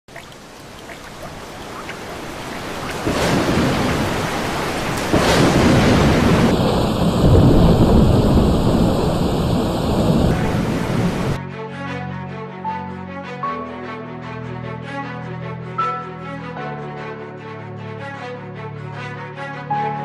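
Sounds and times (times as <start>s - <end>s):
steady rain: 0.1s - 11.4s
rolling thunder: 1.3s - 11.4s.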